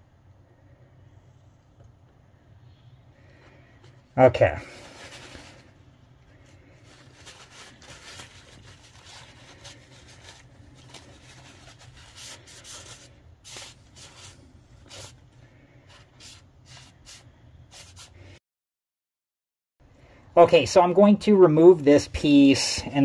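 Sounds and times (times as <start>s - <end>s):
low steady hum: 0.0s - 17.8s
handling rustles: 3.3s - 15.2s.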